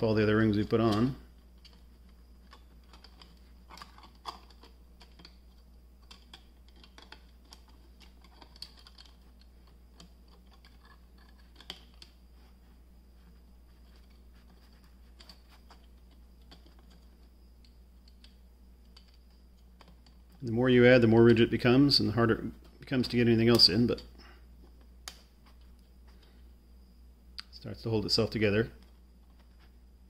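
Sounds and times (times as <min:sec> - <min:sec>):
plastic pieces clicking and tapping: 0:00.8 - 0:12.2.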